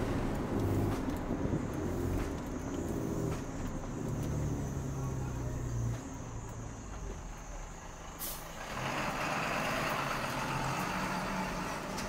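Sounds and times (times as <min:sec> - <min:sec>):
loud rushing noise: 0:00.0 - 0:02.4
truck engine running: 0:00.0 - 0:12.0.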